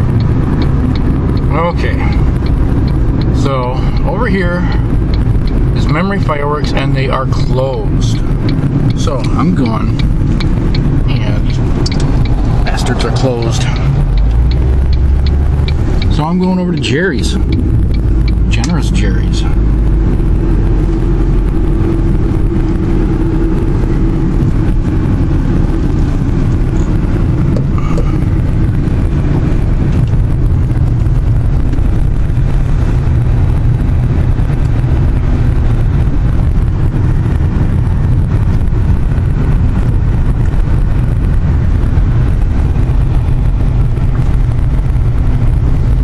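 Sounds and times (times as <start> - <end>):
car engine and tyre rumble: 0.0 - 46.0.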